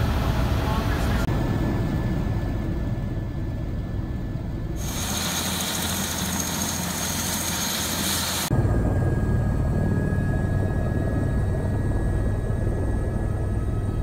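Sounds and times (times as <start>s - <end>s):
helicopter rotor and turbine rumble: 0.0s - 14.0s
loud hiss: 4.8s - 8.5s.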